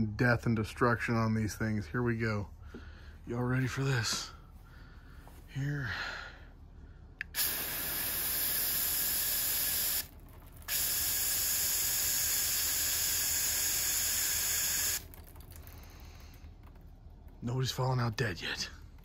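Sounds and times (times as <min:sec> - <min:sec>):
aerosol spray hissing: 0:07.3 - 0:10.1, 0:10.7 - 0:15.0.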